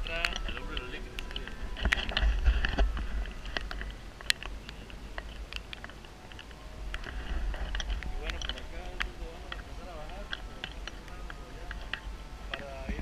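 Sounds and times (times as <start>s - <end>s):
wind buffeting microphone: 0.0s - 13.0s
camera handling noise: 0.2s - 9.7s.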